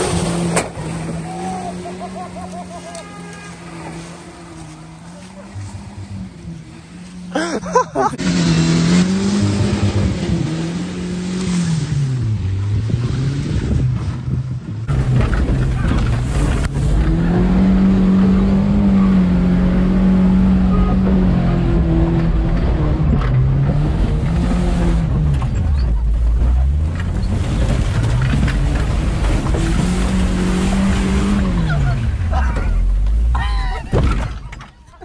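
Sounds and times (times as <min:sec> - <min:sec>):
pickup engine revving hard: 0:08.2 - 0:14.0, 0:14.9 - 0:25.2, 0:27.4 - 0:32.3.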